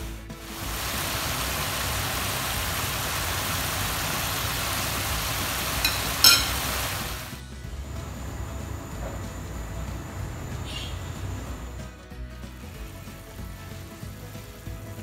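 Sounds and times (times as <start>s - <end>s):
rushing kitchen noise: 0.0s - 15.0s
short clinks: 5.8s - 6.6s.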